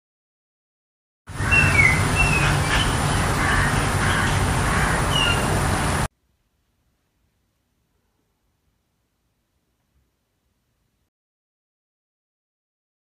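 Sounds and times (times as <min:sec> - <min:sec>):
high bird chirps: 0:01.3 - 0:05.5.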